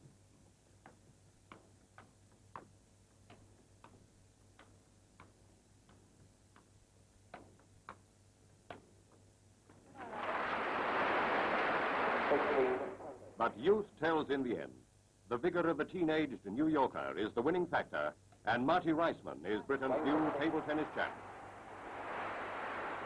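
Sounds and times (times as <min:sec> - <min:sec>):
table tennis ball clicking: 0:00.8 - 0:09.2
low steady hum: 0:02.2 - 0:23.0
applause: 0:09.9 - 0:13.2, 0:19.9 - 0:23.0.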